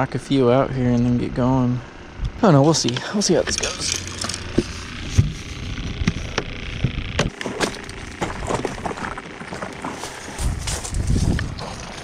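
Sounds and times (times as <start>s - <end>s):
low rumble: 3.4s - 12.0s.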